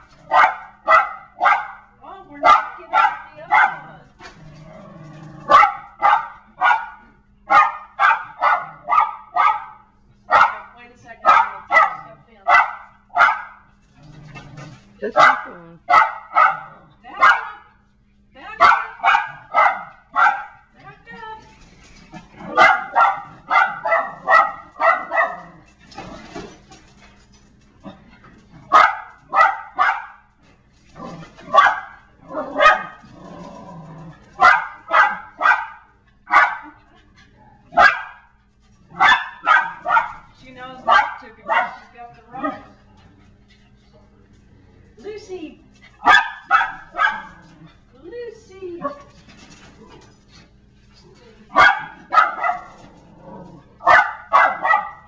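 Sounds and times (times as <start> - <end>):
dog barking: 0.2 - 3.9, 5.5 - 13.7, 15.1 - 17.7, 18.6 - 20.6, 22.5 - 25.5, 28.7 - 30.3, 31.5 - 33.0, 34.4 - 36.8, 37.7 - 42.8, 46.0 - 47.4, 51.5 - 52.8, 53.8 - 55.0.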